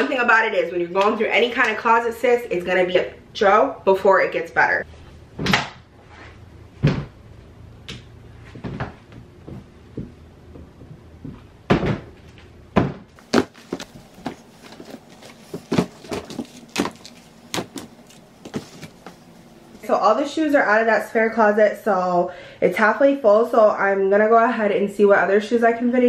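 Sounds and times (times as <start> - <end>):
shoes knocking on plastic tote: 13.2 - 19.2.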